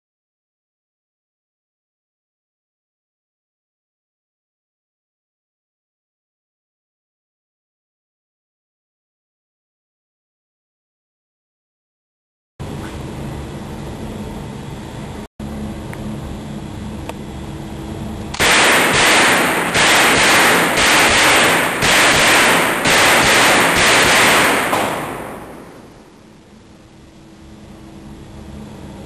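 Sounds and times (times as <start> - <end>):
submachine gun firing: 18.4 - 26.1.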